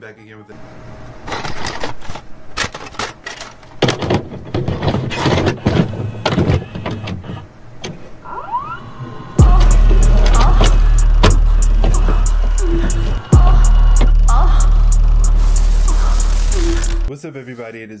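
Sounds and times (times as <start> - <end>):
tape deck mechanical clicks: 1.3 - 8.0, 9.5 - 14.4, 15.2 - 17.1
warbling pitch sweeps: 8.2 - 17.1
bursts of static: 8.9 - 17.1
loud low note: 9.4 - 17.1.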